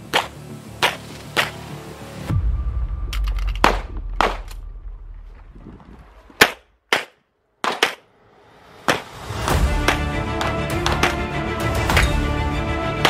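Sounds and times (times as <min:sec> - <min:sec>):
low rumble: 0:02.2 - 0:06.9.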